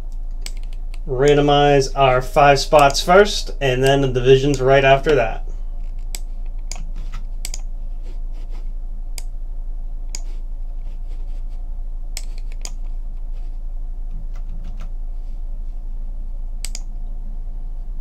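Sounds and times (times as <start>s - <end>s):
steady low hum: 0.0s - 18.0s
computer keyboard and mouse clicks: 0.4s - 1.0s, 5.9s - 7.7s, 12.2s - 12.9s, 16.6s - 16.9s.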